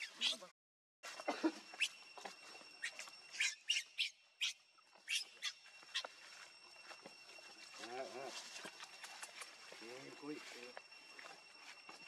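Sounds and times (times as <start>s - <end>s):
baby monkey squealing: 0.0s - 0.5s, 2.8s - 6.1s.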